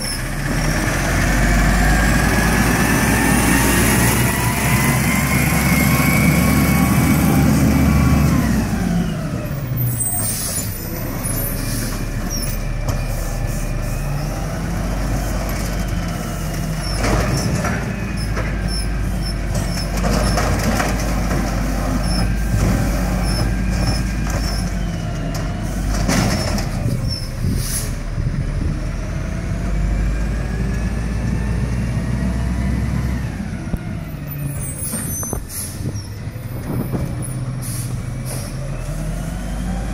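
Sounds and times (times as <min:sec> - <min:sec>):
truck engine revving: 0:00.0 - 0:12.8, 0:13.4 - 0:39.9
air brake hisses: 0:27.5 - 0:28.0, 0:35.3 - 0:36.0, 0:37.6 - 0:38.6.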